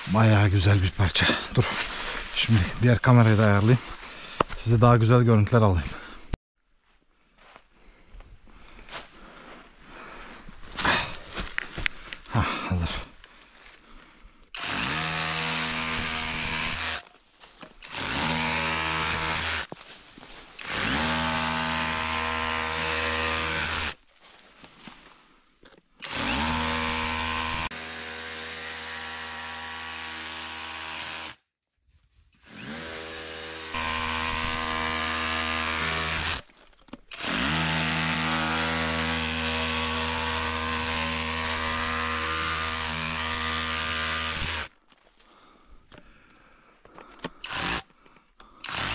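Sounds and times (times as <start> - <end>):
power tool cutting stone: 14.6 - 17.0, 17.8 - 19.7, 20.6 - 24.0, 26.0 - 31.4, 32.5 - 36.5, 37.1 - 44.7, 47.4 - 47.8, 48.6 - 48.9.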